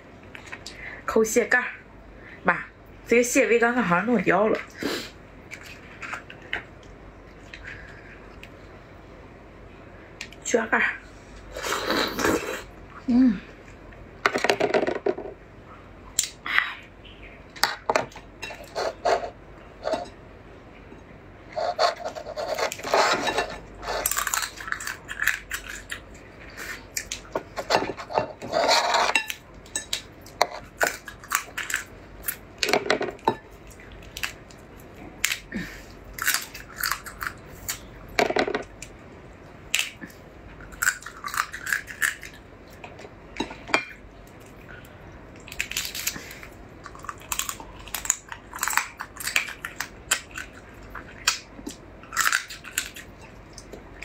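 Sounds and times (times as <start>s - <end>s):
crab shell cracking and crunching: 24.0s - 26.2s, 30.0s - 32.4s, 35.2s - 35.5s, 36.1s - 37.9s, 40.6s - 42.4s, 45.4s - 53.8s.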